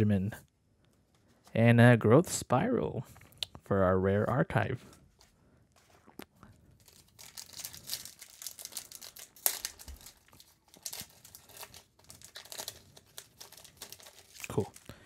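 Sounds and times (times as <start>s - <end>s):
foil wrapper crinkling: 6.7s - 15.0s
foil wrapper tearing: 6.8s - 15.0s.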